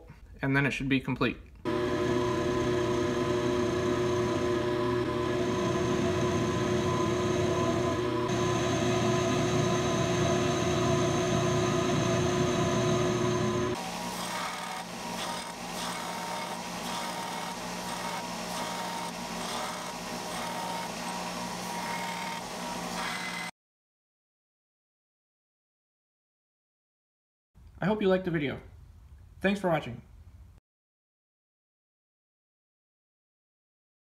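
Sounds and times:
belt sander running: 1.7 - 23.5
milling machine whine: 1.7 - 23.5.

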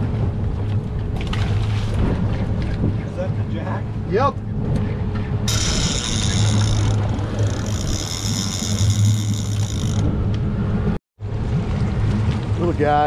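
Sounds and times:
low hum: 0.0 - 12.8
fishing reel whirring: 5.5 - 10.1.

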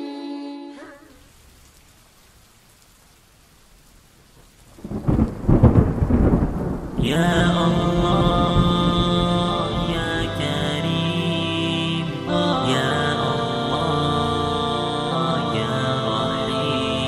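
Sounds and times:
music with long held tones: 0.0 - 1.0, 7.0 - 17.0
rain hiss: 0.8 - 17.0
thunder clap rumbling: 4.7 - 10.6.

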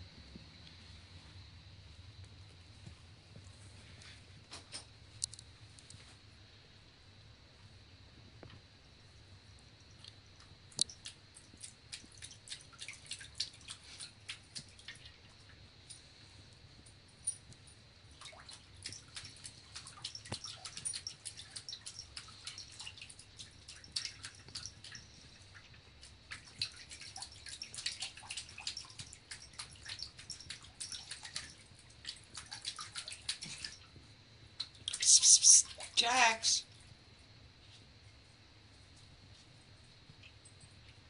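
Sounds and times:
water splashing and dripping: 10.7 - 15.6, 18.1 - 36.7.

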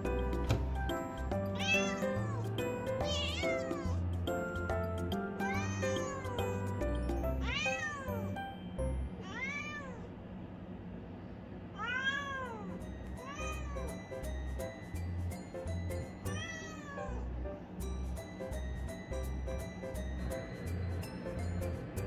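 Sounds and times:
cat meowing: 1.6 - 4.0, 5.4 - 6.5, 7.4 - 8.3, 9.2 - 10.1, 11.8 - 13.9, 16.3 - 17.3.

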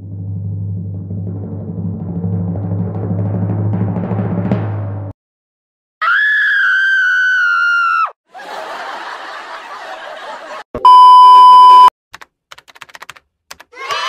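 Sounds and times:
steady test-tone bleep: 10.8 - 11.9
sharp clicks like typing: 12.1 - 13.8.

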